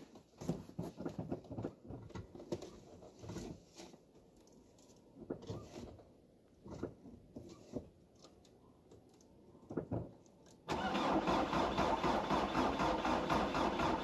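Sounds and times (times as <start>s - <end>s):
diesel engine starting and running: 10.7s - 14.0s.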